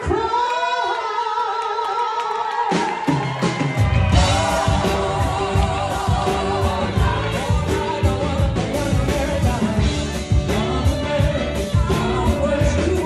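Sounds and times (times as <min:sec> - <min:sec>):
singers holding notes: 0:00.1 - 0:13.0
live rock band playing: 0:03.0 - 0:13.0.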